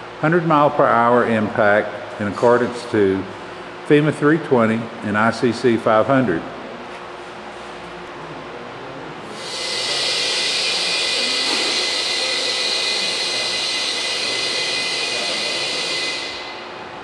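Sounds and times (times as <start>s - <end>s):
compressed air hissing: 9.3s - 16.6s.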